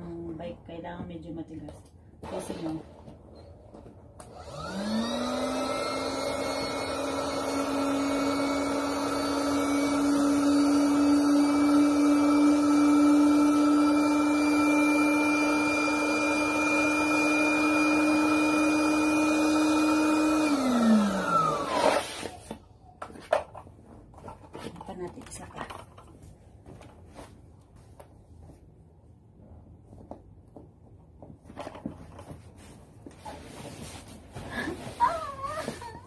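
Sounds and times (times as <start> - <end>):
electric air pump whining: 4.2 - 22.6.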